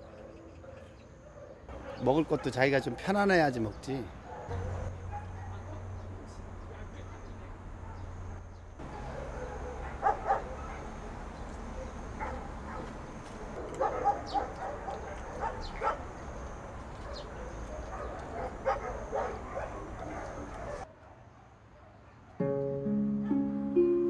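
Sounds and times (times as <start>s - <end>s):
dog barking and yipping: 4.2s - 5.8s, 8.9s - 11.0s, 11.7s - 12.9s, 13.6s - 16.1s, 17.0s - 21.2s.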